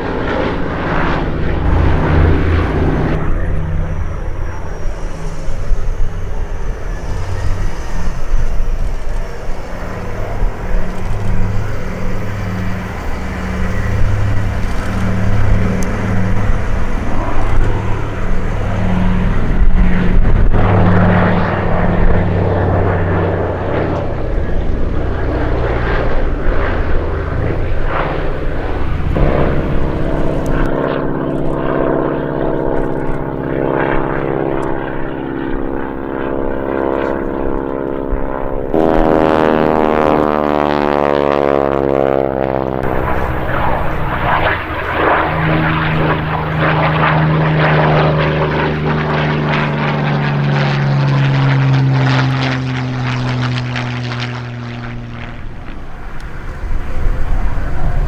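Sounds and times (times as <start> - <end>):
single-engine plane flying by: 0.0 - 58.0
twin radial engine plane overhead: 0.0 - 58.0.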